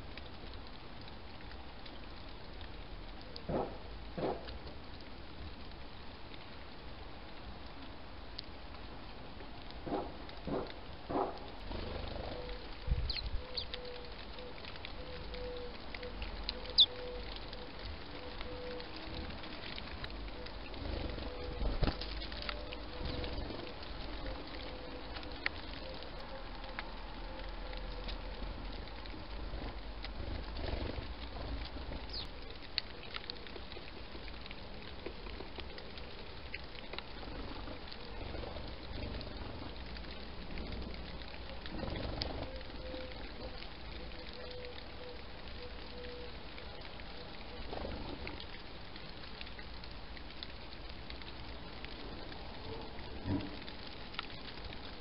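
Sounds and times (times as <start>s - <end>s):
outdoor background hiss: 0.0s - 55.0s
faint ticks: 9.4s - 55.0s
pigeon cooing: 9.9s - 19.3s.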